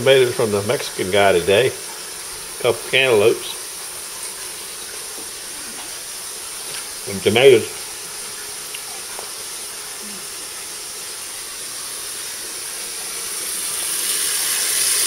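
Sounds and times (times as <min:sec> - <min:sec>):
tap running water into bowl: 0:03.6 - 0:09.6.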